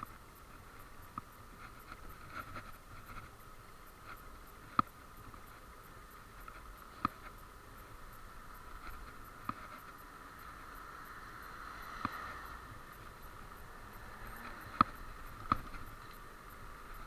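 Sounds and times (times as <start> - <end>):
electric scooter motor whine: 0.0 - 17.0.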